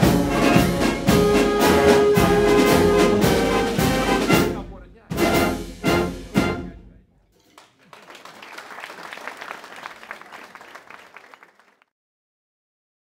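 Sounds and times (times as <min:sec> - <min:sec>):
wind band playing chords: 0:00.0 - 0:07.2
audience applauding: 0:07.4 - 0:11.9.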